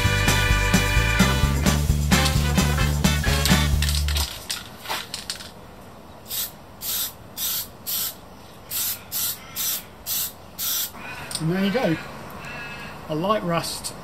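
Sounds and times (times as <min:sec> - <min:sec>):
background music: 0:00.0 - 0:04.1
aerosol spray hissing: 0:06.3 - 0:11.0.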